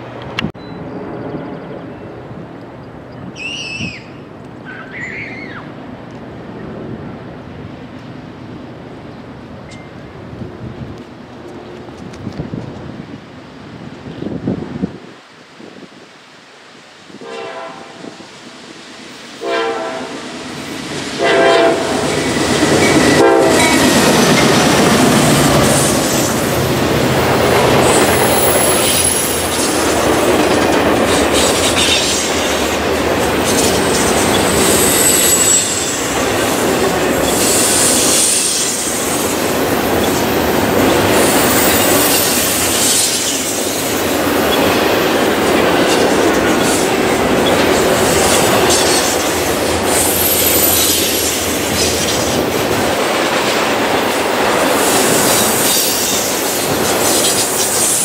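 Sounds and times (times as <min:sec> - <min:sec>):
train horn blasts: 0:17.2 - 0:18.2, 0:19.4 - 0:20.2, 0:21.2 - 0:22.1, 0:23.0 - 0:23.9
train wheels rumbling and clattering: 0:20.1 - 0:58.0
high-pitched wheel squeal: 0:34.3 - 0:36.0.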